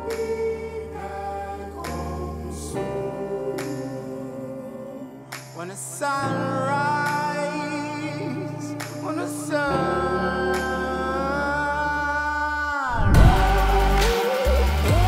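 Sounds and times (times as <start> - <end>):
person singing long notes: 6.0 - 15.0
heavy electronic bass beat: 13.2 - 15.0.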